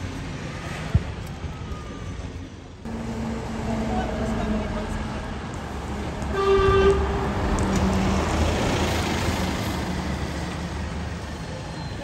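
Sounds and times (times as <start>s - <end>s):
bus driving past: 1.6s - 12.0s
vehicle horn toot: 6.3s - 7.1s.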